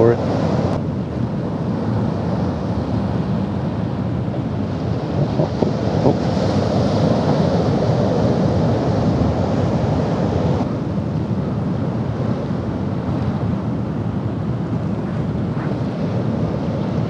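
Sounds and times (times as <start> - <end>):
wind buffeting microphone: 0.0 - 17.0
surf washing against rocks: 4.4 - 10.8.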